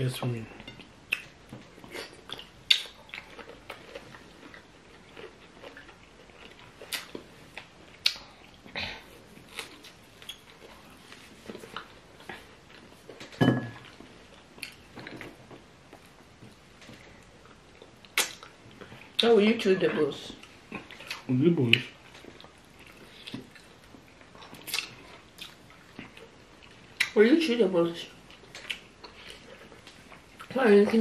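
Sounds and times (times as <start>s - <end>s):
wet mouth smacks: 18.2s - 18.5s.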